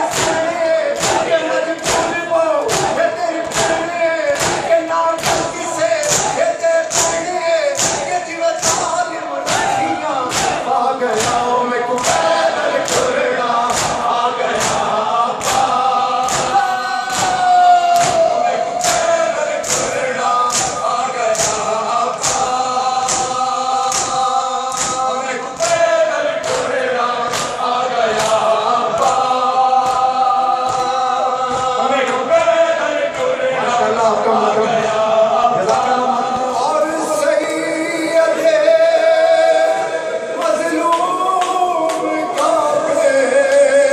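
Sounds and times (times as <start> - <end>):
crowd of men chanting: 0.0 - 43.9
hands slapping chests: 0.1 - 32.2.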